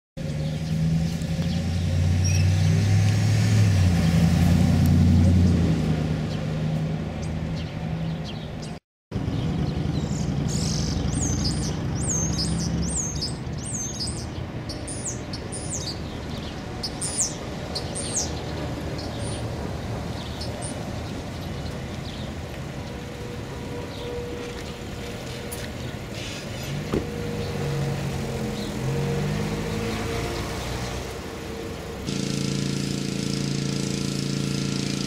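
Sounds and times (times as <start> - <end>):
low traffic rumble: 0.2 - 35.0
vehicle engine passing: 0.2 - 35.0
songbird chirping: 7.2 - 32.0.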